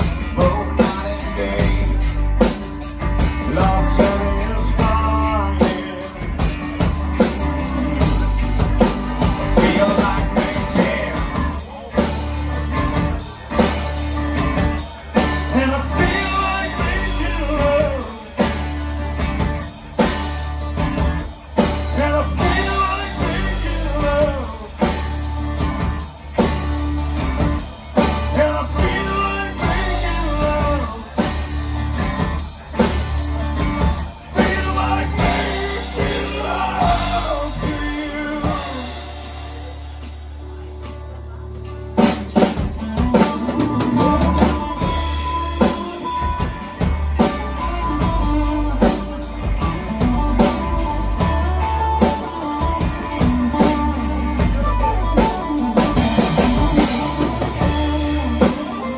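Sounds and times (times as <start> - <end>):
person singing: 0.0 - 2.6, 3.2 - 12.1, 15.2 - 18.7, 21.8 - 25.0, 28.0 - 31.4, 33.9 - 39.8
drum kit beat: 0.0 - 58.9
electric guitar: 0.0 - 58.9.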